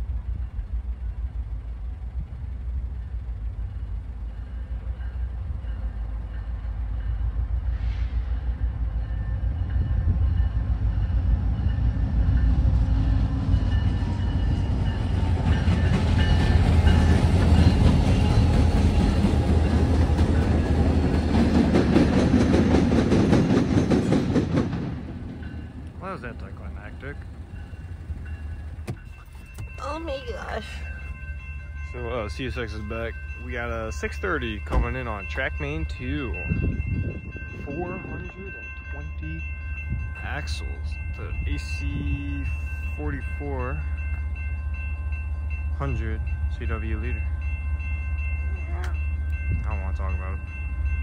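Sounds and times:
freight train rumbling past: 0:00.0 - 0:51.0.

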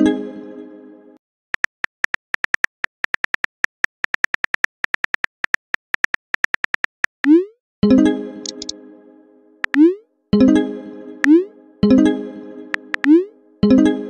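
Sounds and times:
keyboard key clicks: 0:08.4 - 0:08.7.

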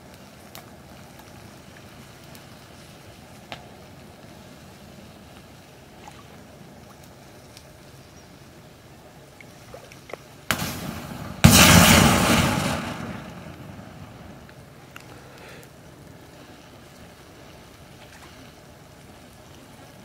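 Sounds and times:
fire crackling: 0:00.0 - 0:20.0
lighter bursting with pop: 0:10.5 - 0:15.1
rush of flame: 0:10.5 - 0:20.0.

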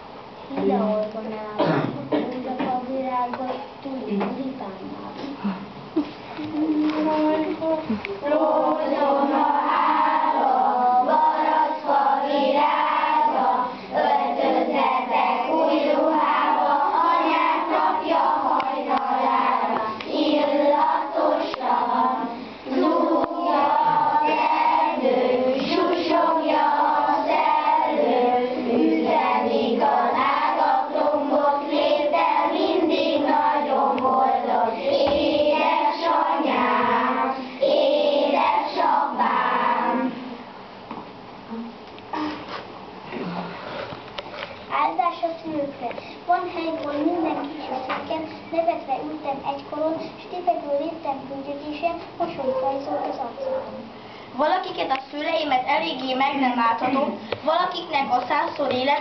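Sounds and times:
children singing together: 0:06.5 - 0:40.5.

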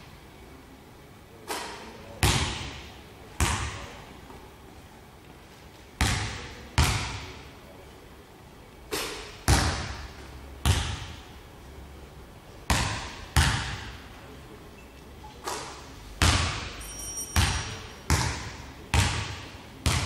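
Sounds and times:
basketball bouncing on wooden floor: 0:10.6 - 0:11.2, 0:12.7 - 0:13.9, 0:17.3 - 0:20.0.

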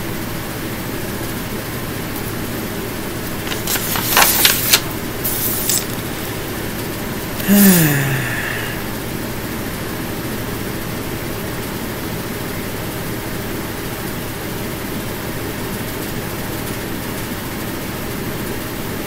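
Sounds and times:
woman humming: 0:07.4 - 0:08.9.

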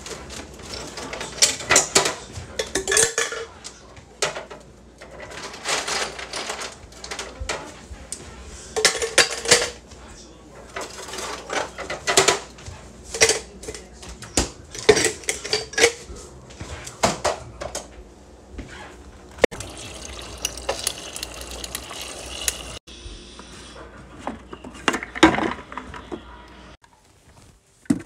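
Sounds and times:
clinks of items in fridge: 0:04.2 - 0:07.7, 0:08.8 - 0:09.8, 0:10.7 - 0:16.1
water dispenser running into tumbler: 0:19.5 - 0:22.8.

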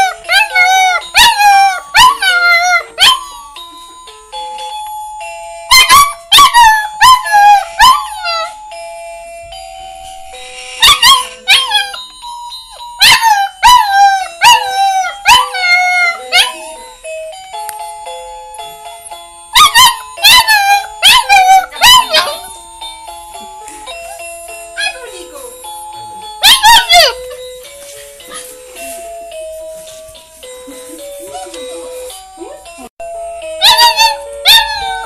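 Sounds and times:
puppy howling: 0:00.0 - 0:03.3, 0:05.7 - 0:08.6, 0:13.0 - 0:16.7, 0:19.6 - 0:22.5, 0:26.4 - 0:27.4, 0:33.6 - 0:35.0
slow tune of held notes: 0:00.0 - 0:26.4, 0:27.0 - 0:35.0.

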